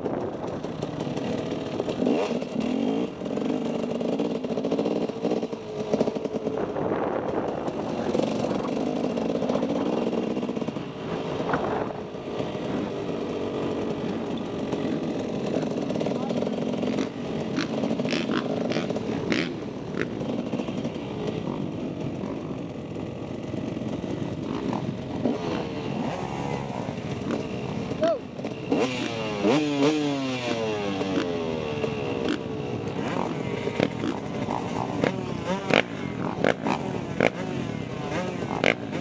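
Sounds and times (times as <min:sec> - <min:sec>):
engines revving: 0:00.0 - 0:39.0
motocross bike engines idling: 0:00.0 - 0:39.0.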